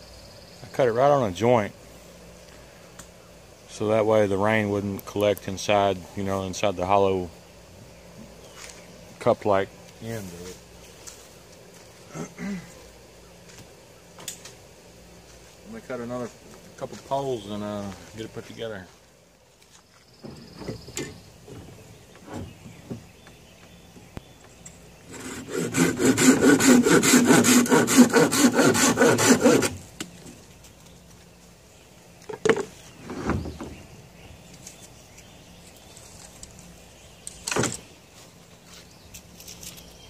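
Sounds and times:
hand saw cutting bamboo: 25.1 - 29.8.

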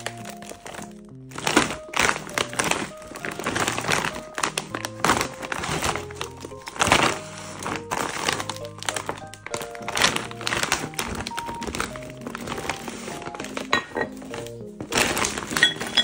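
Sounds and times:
background music with held notes: 0.0 - 16.0
plastic bag crinkling: 0.0 - 16.0.

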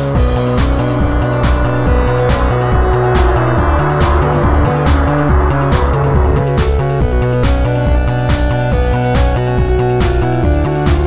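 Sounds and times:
deep synth bass line: 0.2 - 8.8.

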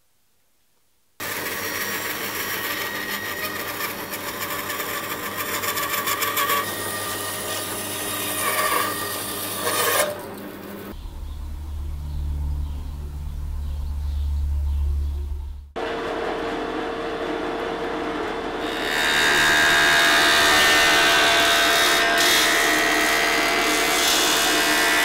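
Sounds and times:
drill boring into wood: 1.2 - 10.9
low hum: 10.8 - 18.9.

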